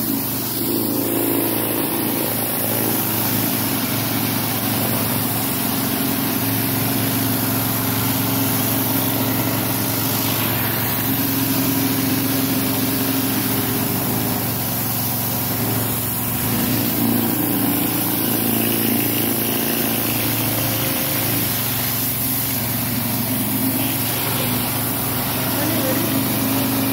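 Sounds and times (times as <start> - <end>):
high-pressure water hissing on paving: 0.0 - 26.9
pressure washer pump hum: 0.0 - 26.9.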